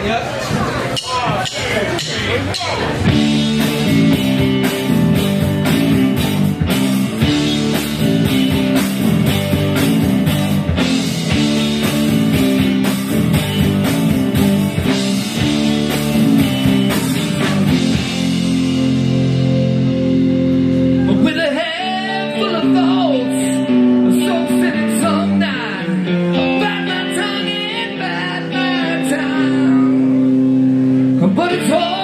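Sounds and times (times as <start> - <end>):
drum kit: 0.4 - 25.5
rock band playing: 0.4 - 32.0.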